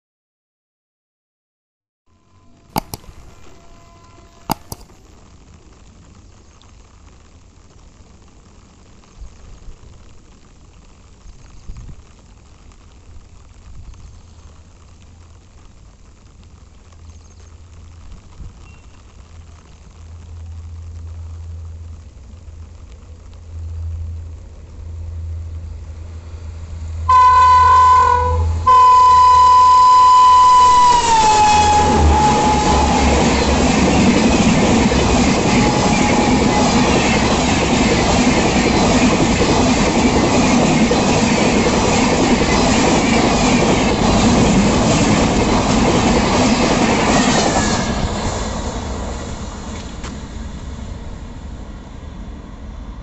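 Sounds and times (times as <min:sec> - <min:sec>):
locomotive horn blasts: 0:02.1 - 0:04.8, 0:27.1 - 0:33.3, 0:35.5 - 0:36.9
train passing at high speed: 0:02.2 - 0:05.6, 0:20.2 - 0:53.0
low steady rumble: 0:17.7 - 0:27.2.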